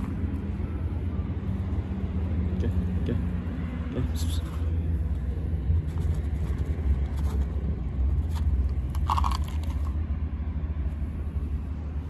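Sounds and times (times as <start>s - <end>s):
steady low rumble: 0.0s - 12.0s
cat crunching dry kibble: 5.8s - 10.0s.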